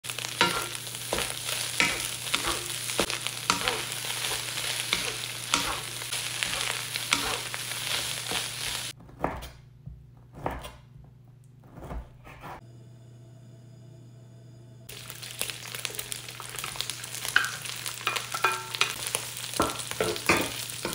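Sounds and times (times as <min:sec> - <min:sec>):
rice sizzling in a wok: 0:00.0 - 0:09.0, 0:14.8 - 0:20.9
wooden spatula scraping a pan: 0:00.2 - 0:09.0, 0:16.6 - 0:20.9.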